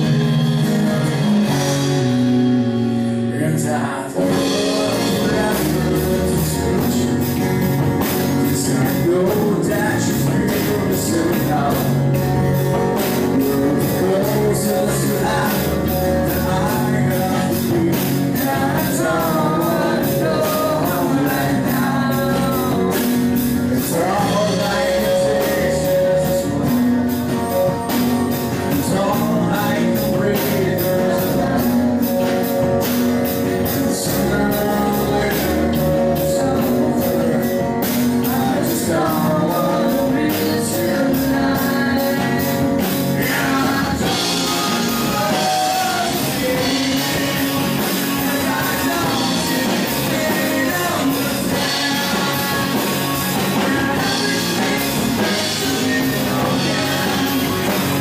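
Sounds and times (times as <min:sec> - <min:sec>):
drum kit: 0:00.0 - 0:58.0
man singing into microphone: 0:03.0 - 0:58.0.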